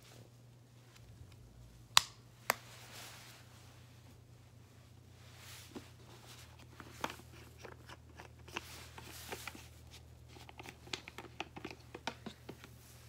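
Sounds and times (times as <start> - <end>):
low steady hum: 0.0 - 13.0
soft rustling: 2.6 - 13.0
handling clicks and taps: 10.5 - 12.7.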